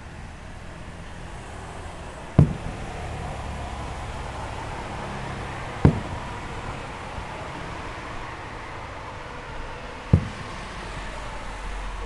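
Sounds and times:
steady background hiss: 0:00.0 - 0:12.0
fireworks bursting with booms: 0:02.3 - 0:07.2, 0:10.1 - 0:11.8.

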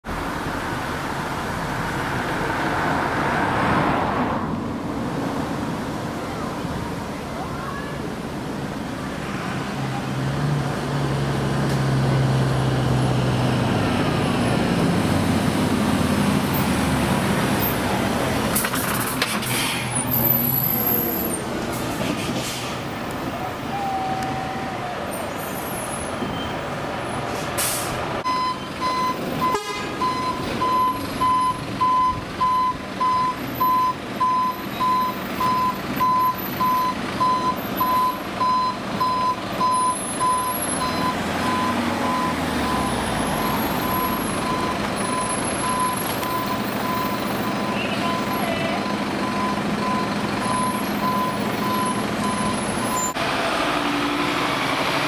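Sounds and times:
diesel truck engine running: 0:26.3 - 0:55.0
reversing alarm beeping: 0:28.2 - 0:53.2.

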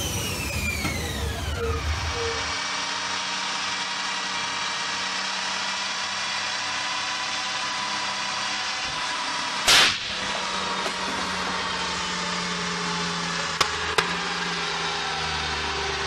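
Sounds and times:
diesel engine running: 0:00.0 - 0:16.0
loud engine bang: 0:09.6 - 0:11.6.

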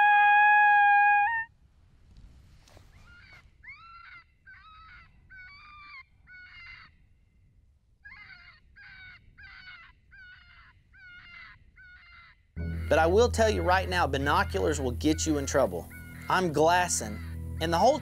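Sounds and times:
harsh caw-like calls: 0:08.1 - 0:13.0.

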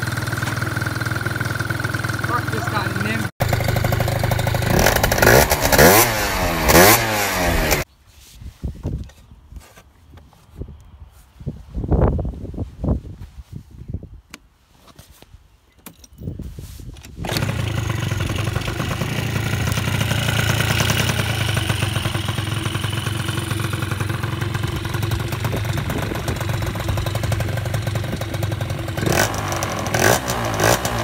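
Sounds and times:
scooter engine starting and running: 0:00.0 - 0:07.9, 0:17.1 - 0:31.0.

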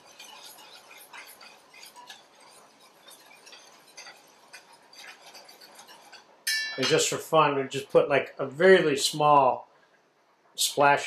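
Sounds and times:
whisk clinking on metal bowl: 0:00.0 - 0:07.3.

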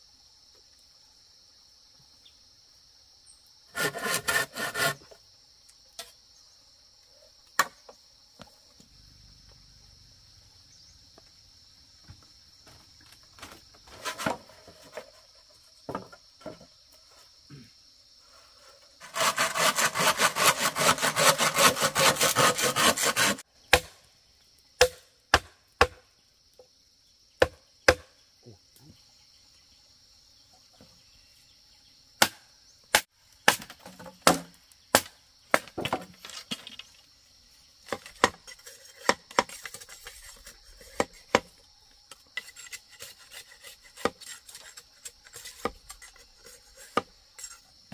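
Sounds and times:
high insect drone: 0:00.0 - 0:47.9
rapid scraping strokes: 0:03.7 - 0:05.1, 0:18.5 - 0:23.4, 0:38.1 - 0:41.4.

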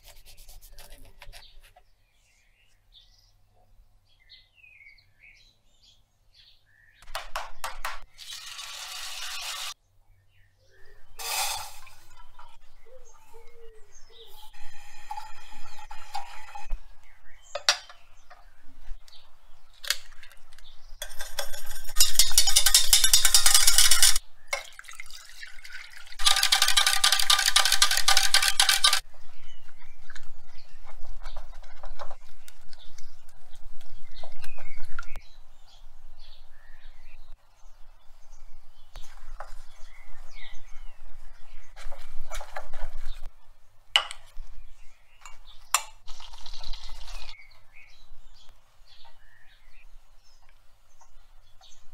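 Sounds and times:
utensils clinking and knocking: 0:14.5 - 0:16.8, 0:19.9 - 0:24.7, 0:26.2 - 0:29.0
whisk beating in steel saucepan: 0:14.6 - 0:16.8, 0:21.0 - 0:24.2, 0:26.2 - 0:29.0.

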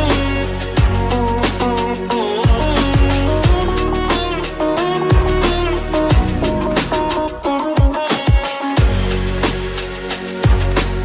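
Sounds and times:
plucked-string melody: 0:00.0 - 0:09.6
deep drum beat: 0:05.1 - 0:09.0.

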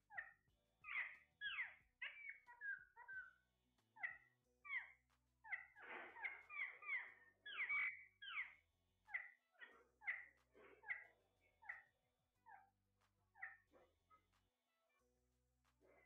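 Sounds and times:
parakeets squawking: 0:00.1 - 0:03.4, 0:04.0 - 0:12.7.

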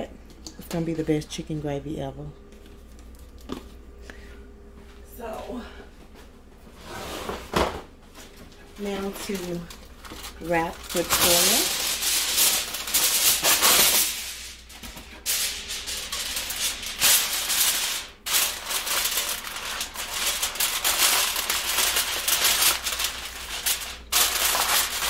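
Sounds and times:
aluminum foil crinkling: 0:02.5 - 0:03.7, 0:08.8 - 0:25.0.

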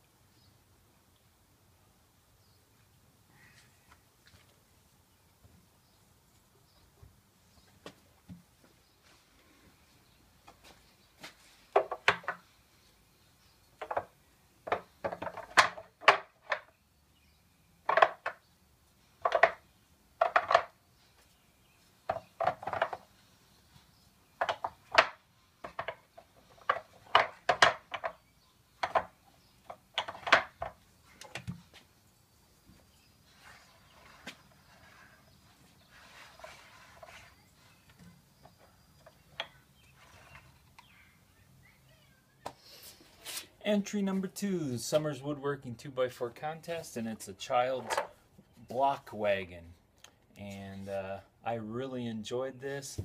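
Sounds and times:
wooden blocks clacking: 0:11.7 - 0:12.5, 0:13.8 - 0:16.7, 0:17.8 - 0:18.4, 0:19.2 - 0:19.6, 0:20.2 - 0:20.8, 0:22.0 - 0:23.1, 0:24.4 - 0:28.2, 0:28.8 - 0:31.6.

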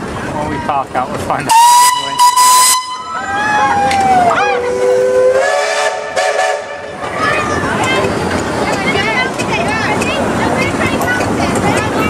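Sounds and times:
steam whistle blast: 0:01.5 - 0:03.3, 0:04.4 - 0:06.8.

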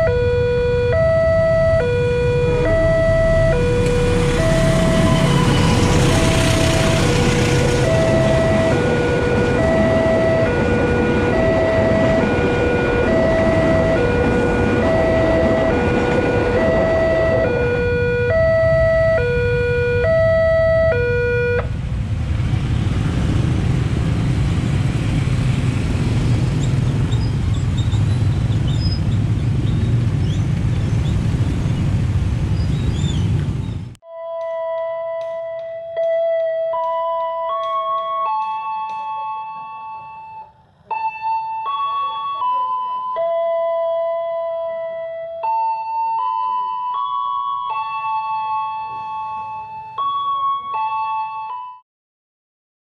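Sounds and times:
level crossing two-tone alarm: 0:00.0 - 0:21.7, 0:34.0 - 0:51.8
vehicle engines rumbling: 0:00.0 - 0:34.0
train rumbling past: 0:01.3 - 0:34.0.

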